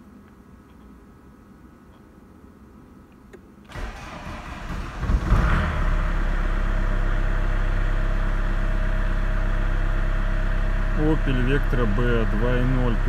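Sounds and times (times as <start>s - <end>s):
starter motor cranking: 3.7s - 5.2s
diesel engine idling: 3.7s - 13.0s.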